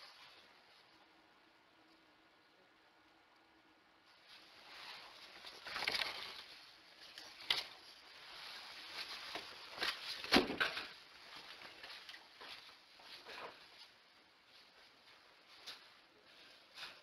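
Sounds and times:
rustling and scraping: 0:04.1 - 0:17.0.

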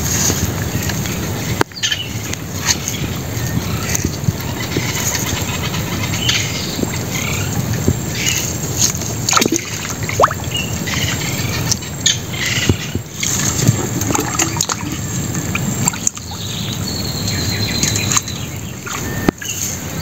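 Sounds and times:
frogs croaking: 0:00.6 - 0:20.0
clicks and splashes of wet netting: 0:07.8 - 0:10.5.

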